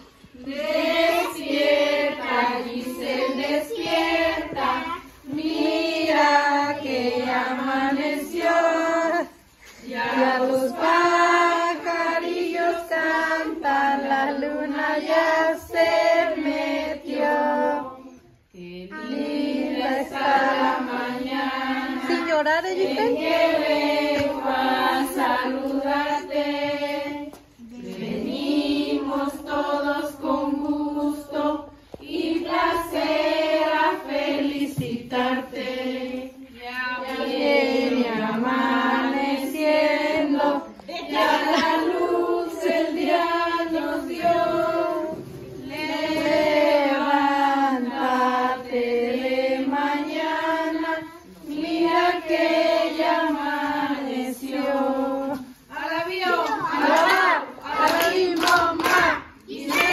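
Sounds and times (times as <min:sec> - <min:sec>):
children and women singing: 0:00.0 - 0:59.9.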